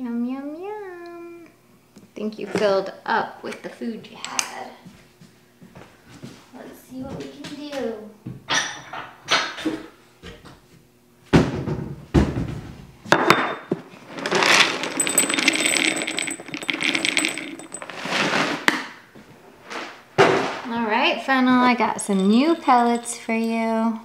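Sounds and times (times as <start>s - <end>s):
pellets rattling into a bowl: 14.0s - 18.6s.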